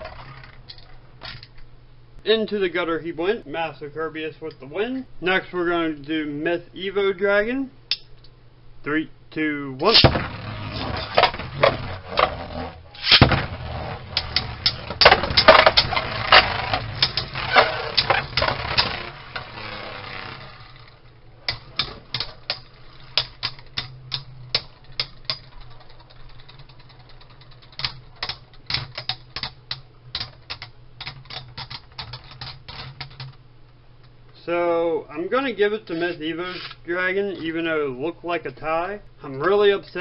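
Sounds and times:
spinning tops whirring: 0.0 - 1.0, 9.8 - 29.4.

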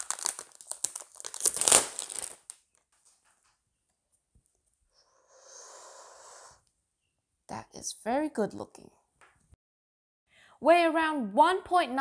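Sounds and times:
packaging crinkling and rustling: 0.0 - 3.3.

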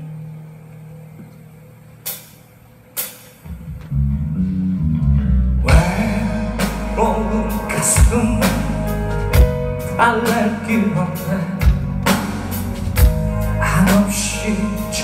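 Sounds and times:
drums: 1.2 - 15.0
bass guitar: 3.4 - 15.0
electric guitar: 3.4 - 15.0.

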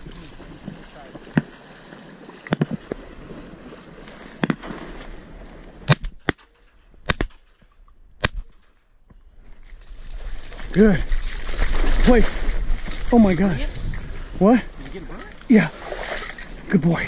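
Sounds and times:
shotgun shots: 4.4 - 5.0, 5.9 - 7.6, 8.2 - 8.8.

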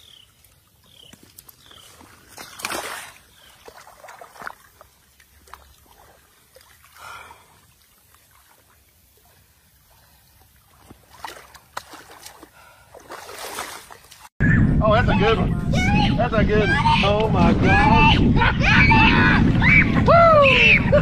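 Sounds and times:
water sloshing and splashing: 0.0 - 14.3.

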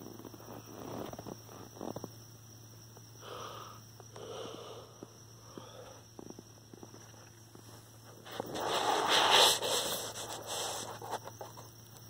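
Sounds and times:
crickets trilling: 0.0 - 12.0
rustling close to microphone: 6.8 - 11.7.

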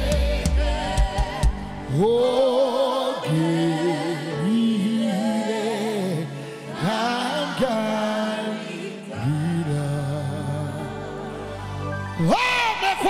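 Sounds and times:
band accompaniment: 0.0 - 1.9
singers singing gospel: 0.0 - 13.0.

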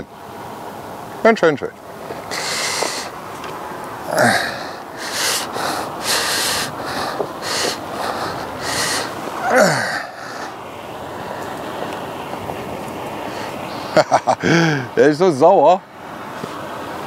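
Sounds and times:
man breathing hard: 2.2 - 3.2, 4.1 - 11.6, 13.2 - 14.9.

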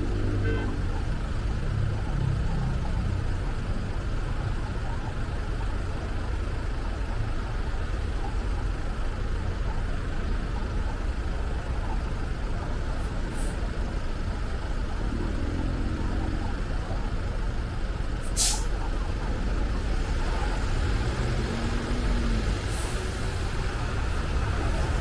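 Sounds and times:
car engine and tyre rumble: 0.0 - 25.0
brief high hiss: 18.3 - 18.7.

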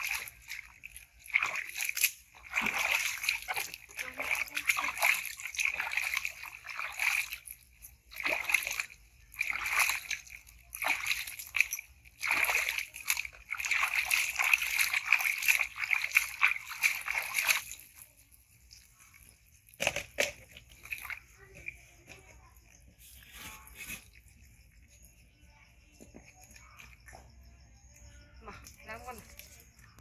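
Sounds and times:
water splashing in plastic tub: 0.0 - 25.1.

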